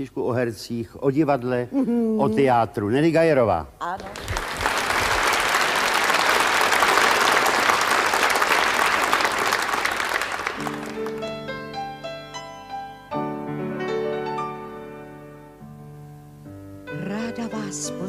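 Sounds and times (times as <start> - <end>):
audience applause: 4.0 - 11.6.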